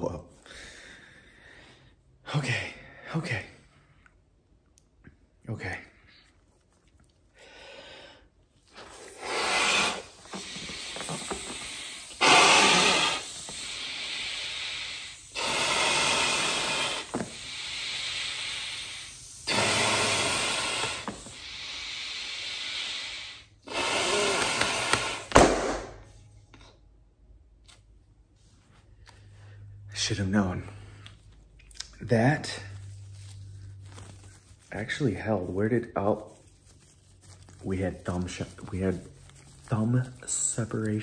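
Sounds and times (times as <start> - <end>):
glove popping: 8.7 - 13.8, 15.5 - 17.5, 24.1 - 26.0
man blowing into glove: 8.7 - 25.6
air hissing: 8.8 - 26.0.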